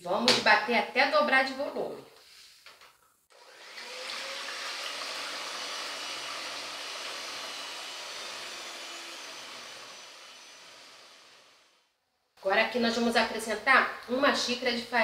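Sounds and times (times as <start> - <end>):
electric hand mixer whisking eggs: 3.3 - 11.8.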